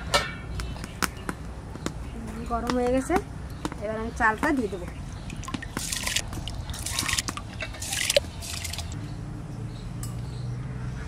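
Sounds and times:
water dripping: 0:05.0 - 0:09.0.

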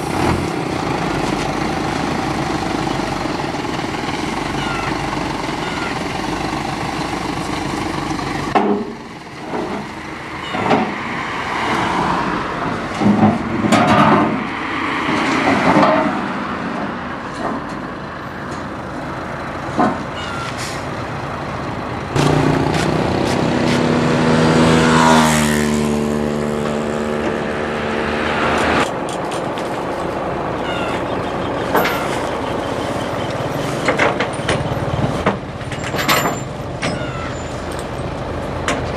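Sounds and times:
engine running: 0:16.7 - 0:38.9
steel ramps clanging: 0:33.6 - 0:37.6.

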